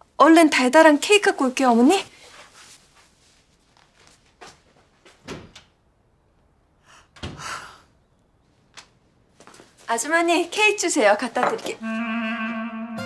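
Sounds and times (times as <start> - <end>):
soft footsteps: 2.0 - 5.2, 8.6 - 10.6.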